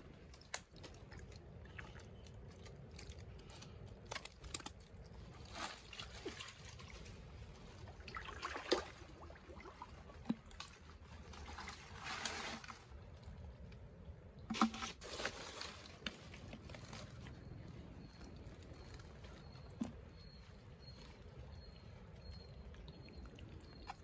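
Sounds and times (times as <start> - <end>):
hands squelching through wet mud: 0.0 - 13.7
short water splashes: 5.4 - 13.4.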